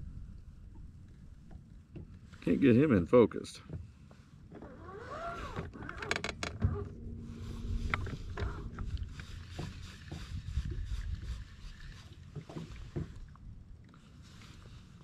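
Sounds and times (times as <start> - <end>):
low rumbling background: 0.0 - 2.5, 5.4 - 15.0
knocks and thumps in boat: 0.7 - 2.4, 3.5 - 13.4
steady low hum: 5.6 - 12.0.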